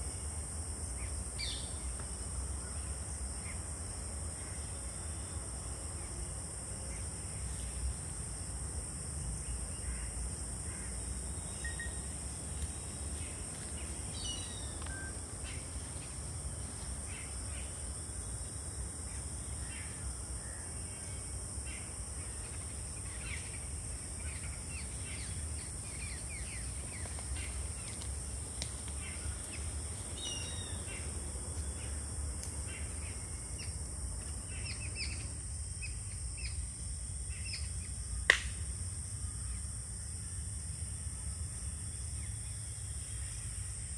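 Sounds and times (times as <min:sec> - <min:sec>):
insect drone: 0:00.0 - 0:43.9
birds chirping: 0:11.4 - 0:17.8, 0:24.3 - 0:32.0.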